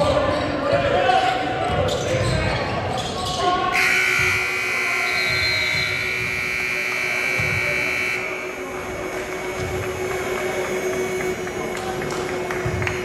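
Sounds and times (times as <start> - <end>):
scoreboard buzzer long tone: 3.8 - 13.0.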